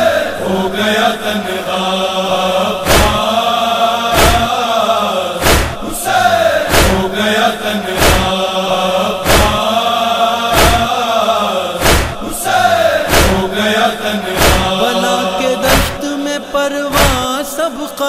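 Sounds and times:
men chanting a lament: 0.0 - 18.0
loud regular thud: 2.8 - 3.3, 4.1 - 4.5, 5.4 - 5.9, 6.7 - 7.1, 8.0 - 8.4, 9.2 - 9.6, 10.5 - 10.9, 11.8 - 12.4, 13.0 - 13.5, 14.3 - 14.8, 15.7 - 16.0, 17.0 - 17.3.

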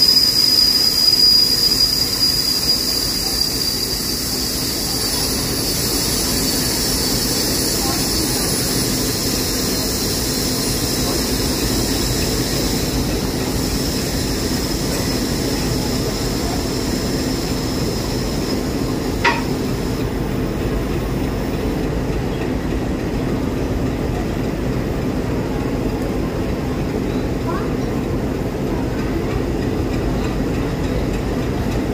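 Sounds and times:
diesel locomotive idling: 0.0 - 31.9
sharp knock at coupling: 19.2 - 19.5.

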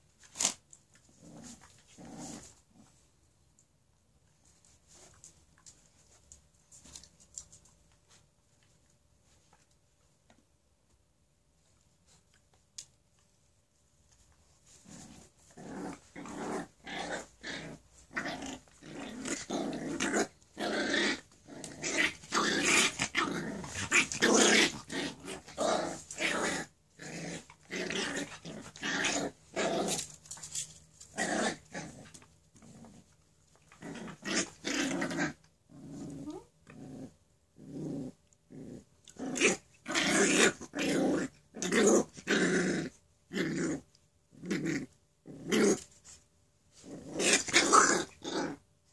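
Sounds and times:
dog play-growling: 0.3 - 3.0, 14.5 - 48.6.

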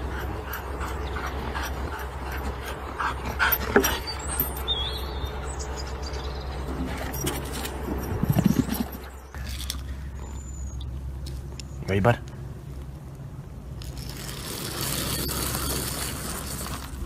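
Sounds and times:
dog panting: 0.0 - 4.4.

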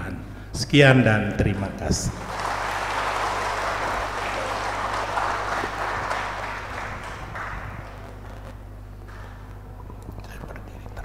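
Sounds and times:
congregation applauding: 2.1 - 9.5.

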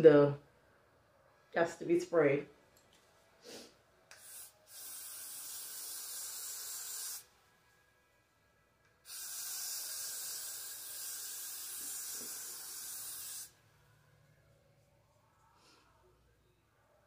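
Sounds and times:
aerosol spray hissing: 3.5 - 7.3, 9.0 - 13.5.

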